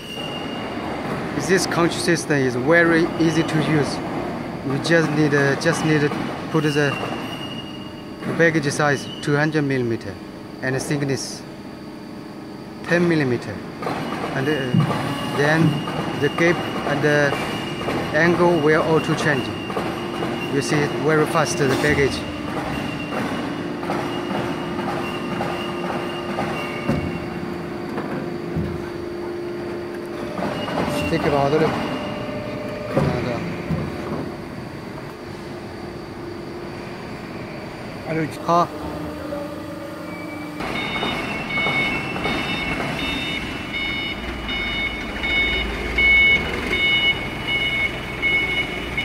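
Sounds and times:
hydraulic shear humming: 0:00.0 - 0:49.0
high warning beeps: 0:01.4 - 0:04.0, 0:14.1 - 0:27.4, 0:30.2 - 0:33.6, 0:40.2 - 0:49.0
machine running: 0:12.8 - 0:49.0.

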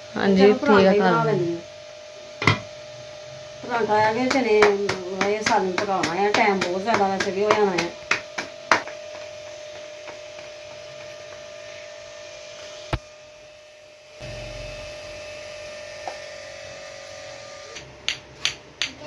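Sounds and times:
electrical hum: 0:00.0 - 0:19.0
low rumble: 0:14.2 - 0:15.8.

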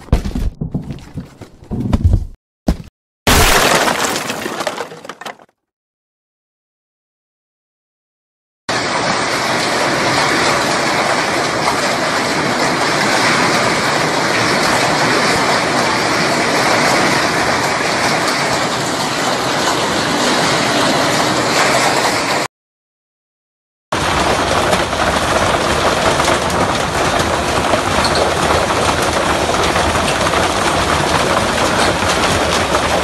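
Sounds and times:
heavy hail pelting: 0:03.3 - 0:05.3, 0:08.7 - 0:22.4, 0:24.0 - 0:33.0
wind: 0:08.7 - 0:22.5.

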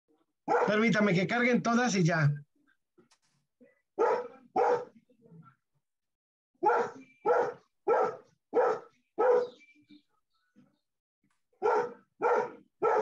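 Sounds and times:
dog barking: 0:00.5 - 0:00.9, 0:04.0 - 0:05.0, 0:06.6 - 0:09.6, 0:11.6 - 0:13.0.

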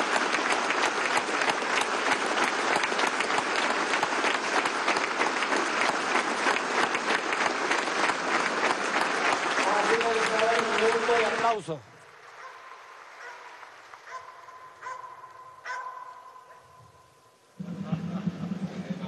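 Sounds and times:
crowd applauding: 0:00.0 - 0:15.4.

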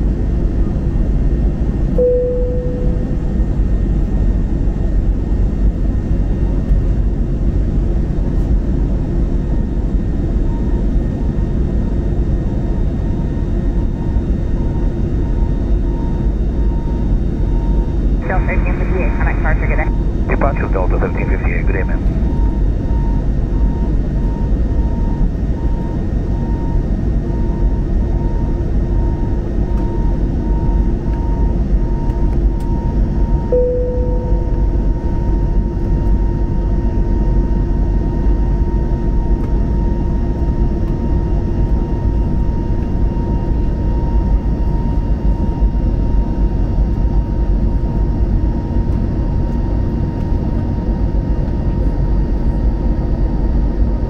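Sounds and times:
short tone: 0:02.0 - 0:03.4, 0:33.3 - 0:35.5
faint high tone humming: 0:02.0 - 0:03.6, 0:33.3 - 0:35.8
jet engines roaring: 0:18.2 - 0:22.3.

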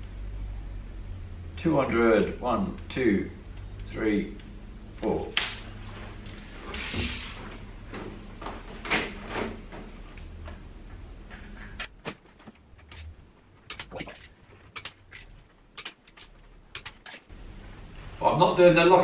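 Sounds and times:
torque wrench clicking: 0:13.7 - 0:17.3.

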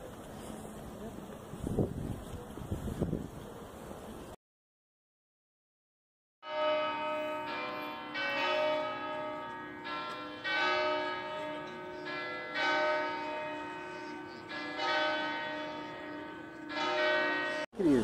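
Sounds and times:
church bells ringing: 0:06.4 - 0:18.0.

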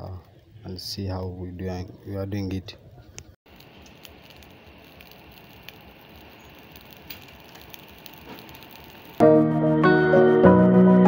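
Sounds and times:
charcoal fire crackling: 0:03.2 - 0:09.2
rushing hiss: 0:03.5 - 0:09.2.

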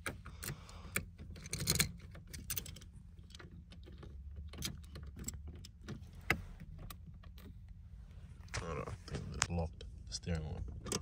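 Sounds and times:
key clicking and rattling in ignition: 0:00.0 - 0:07.8.

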